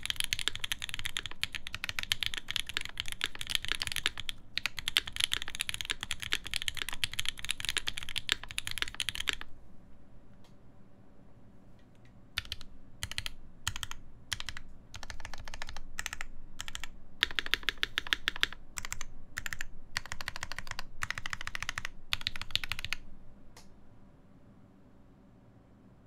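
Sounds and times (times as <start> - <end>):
mechanical keyboard typing: 0.0 - 9.5, 12.4 - 23.0.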